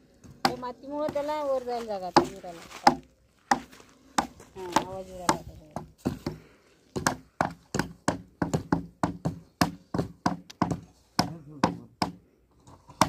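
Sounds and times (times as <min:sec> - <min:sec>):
sharp chopping knocks: 0:07.0 - 0:12.2.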